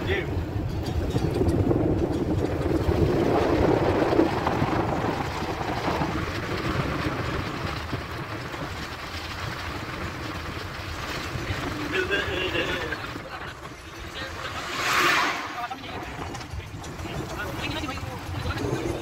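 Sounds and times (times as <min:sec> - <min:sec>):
car road and engine noise: 0:00.0 - 0:19.0
wind buffeting microphone: 0:00.0 - 0:19.0.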